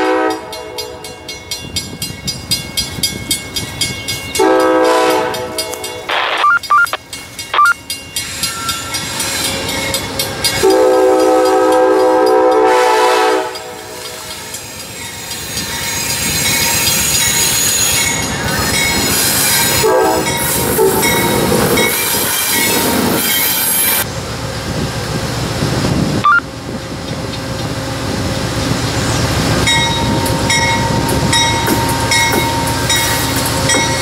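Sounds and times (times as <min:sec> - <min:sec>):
locomotive horn: 0:00.0 - 0:01.2, 0:04.4 - 0:06.6, 0:10.6 - 0:14.4, 0:19.7 - 0:21.5
locomotive engine and wheels rumbling: 0:00.0 - 0:34.0
wheels squealing on track: 0:07.6 - 0:10.0, 0:14.6 - 0:19.8.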